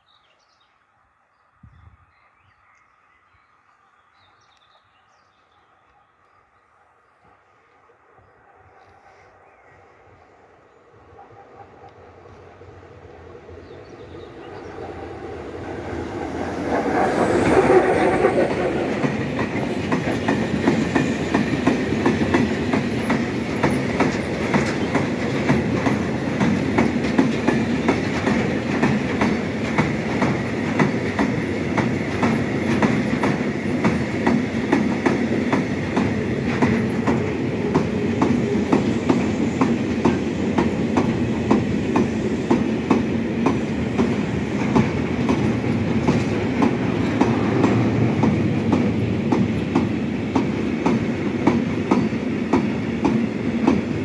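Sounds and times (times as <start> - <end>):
electric locomotive passing: 6.3 - 54.0
train wheel noise: 11.1 - 54.0
wheels clacking over rail joints: 14.8 - 54.0.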